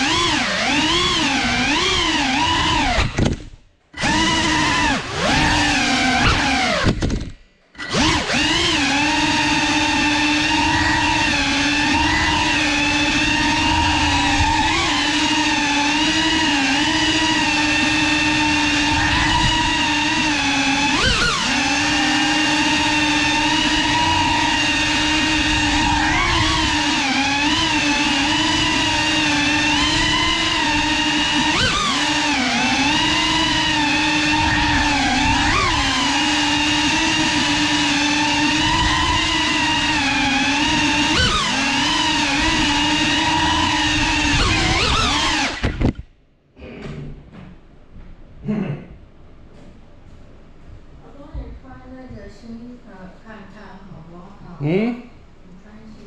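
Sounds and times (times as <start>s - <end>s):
drone motors whining: 0.0s - 47.4s.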